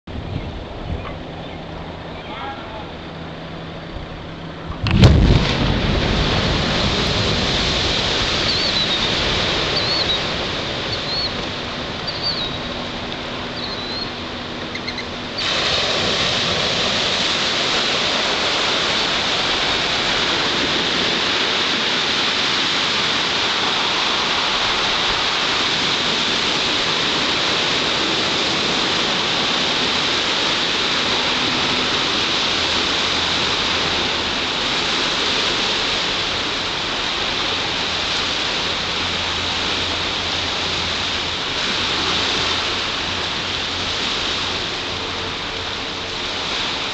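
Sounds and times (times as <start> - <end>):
steady rushing noise: 0.0 - 46.9
explosive blast: 4.7 - 10.0.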